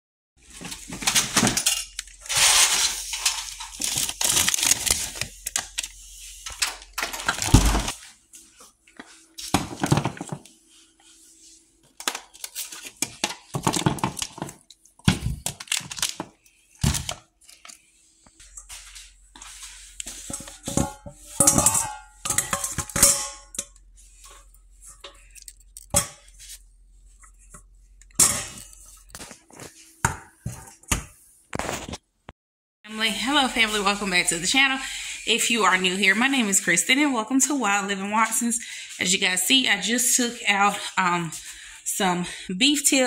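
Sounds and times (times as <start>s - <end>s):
plastic packaging crinkling: 1.9s - 8.0s, 12.0s - 17.8s.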